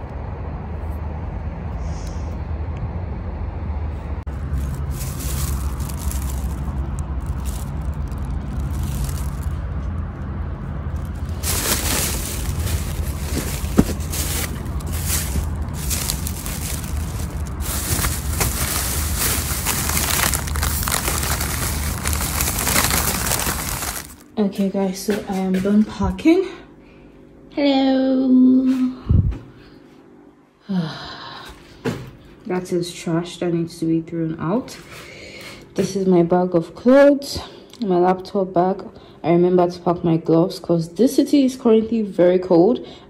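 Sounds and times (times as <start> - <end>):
steady low rumble: 0.0 - 24.4
rustling and scraping: 4.3 - 10.1, 10.8 - 24.3.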